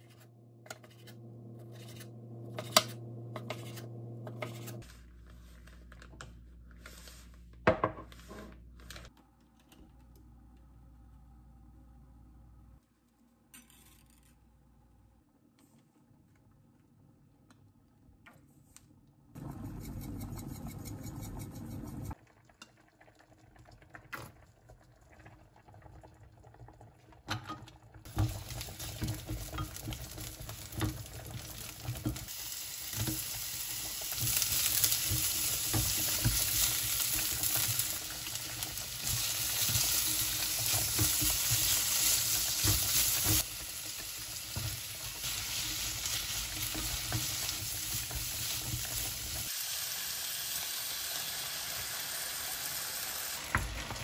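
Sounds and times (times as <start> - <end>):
spatula scraping and knocking pan: 0.0 - 4.8, 28.1 - 32.3, 34.1 - 43.5, 44.5 - 49.4
food sizzling in frying pan: 28.0 - 54.0.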